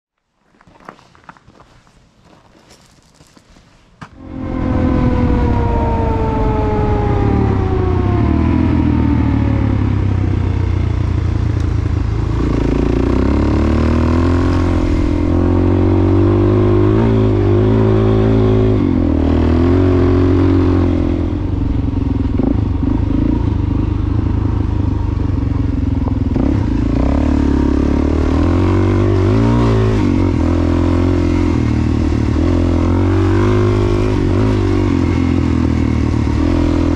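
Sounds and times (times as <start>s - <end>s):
motorcycle engine under way: 4.2s - 36.9s.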